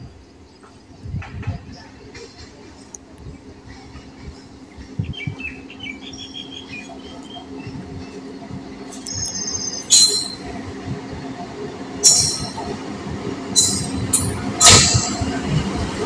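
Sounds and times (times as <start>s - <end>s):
train rumble: 0.0s - 16.0s
birds chirping: 3.4s - 14.5s.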